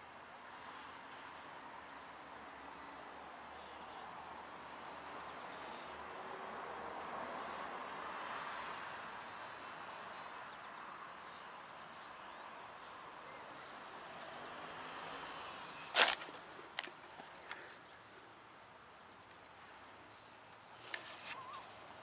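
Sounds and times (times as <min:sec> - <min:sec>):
model plane motor whining: 0:00.0 - 0:17.5
plane cracking onto pavement: 0:15.9 - 0:17.6.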